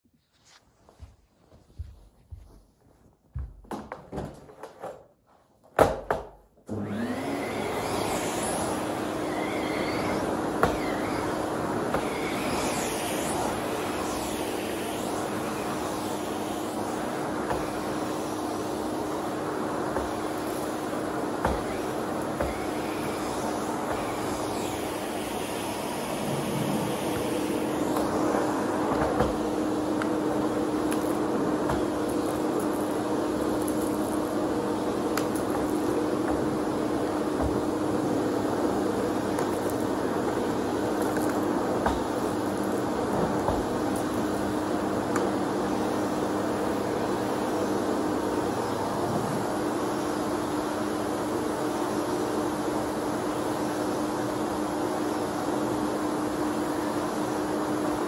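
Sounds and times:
vacuum cleaner motor running: 0:06.6 - 0:58.0
vacuum nozzle and hose clattering: 0:06.7 - 0:37.9, 0:39.2 - 0:45.4.

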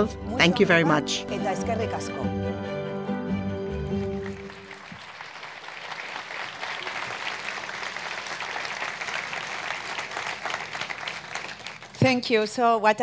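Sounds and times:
audience applauding: 0:03.8 - 0:12.2.

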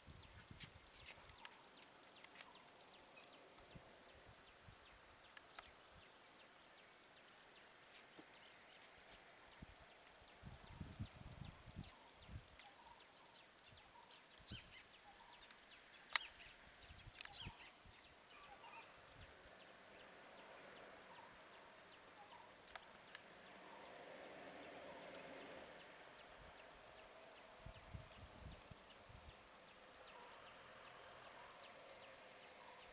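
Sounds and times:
faint bird calls chirping: 0:00.2 - 0:32.9
sharp click: 0:15.4 - 0:16.4.

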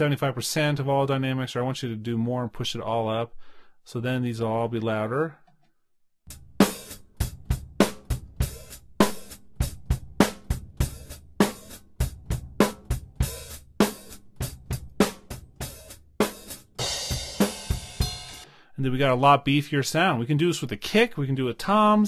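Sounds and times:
drum kit playing steady beat: 0:06.3 - 0:18.6.

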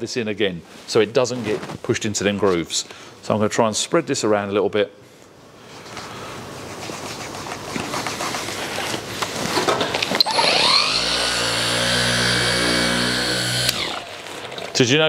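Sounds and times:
mini polisher whining: 0:10.2 - 0:14.1.

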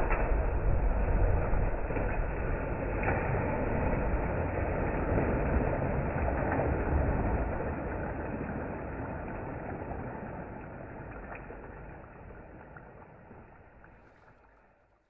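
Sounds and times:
person splashing into water: 0:00.0 - 0:10.5
wading through water: 0:00.0 - 0:15.0.

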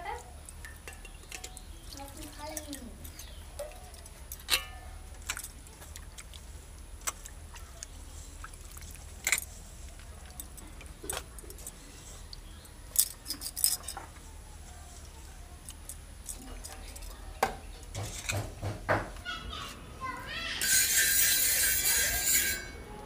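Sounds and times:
shrimp washed in water by hand: 0:00.0 - 0:13.5
steel plate and bowl clinking: 0:04.4 - 0:05.0, 0:20.6 - 0:22.9.

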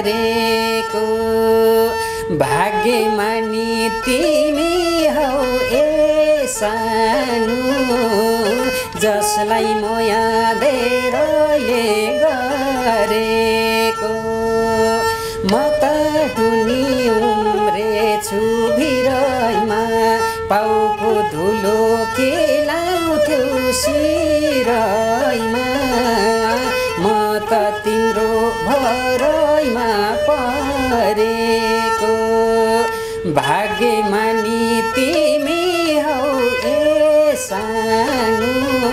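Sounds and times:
bowed fiddle: 0:00.0 - 0:38.9.

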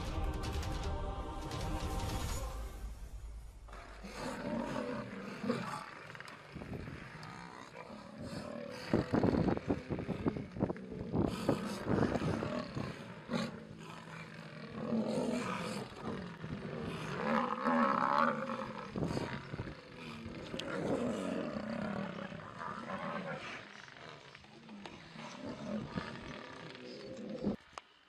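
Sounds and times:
lionesses growling and snarling: 0:03.7 - 0:28.0.

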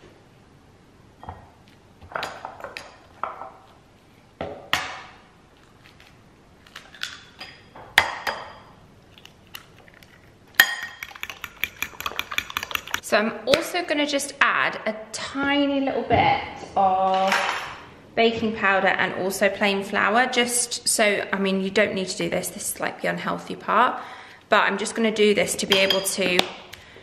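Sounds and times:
eggs cracking: 0:09.0 - 0:13.0
fork scraping in ceramic bowl: 0:10.8 - 0:13.0
fork whisking against bowl: 0:10.8 - 0:13.0.

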